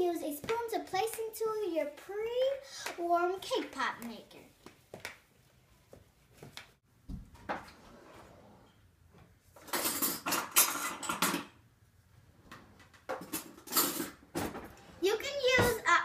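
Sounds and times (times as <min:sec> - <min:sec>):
metal utensils clattering: 0:09.6 - 0:11.6, 0:13.1 - 0:14.6.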